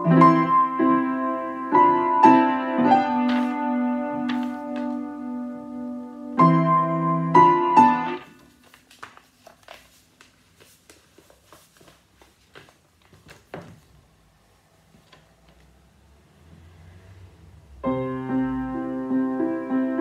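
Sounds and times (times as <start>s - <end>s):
piano chords: 0.0s - 8.5s, 17.2s - 20.0s
sheet music pages rustling: 2.9s - 5.6s, 7.8s - 14.2s, 14.8s - 15.8s.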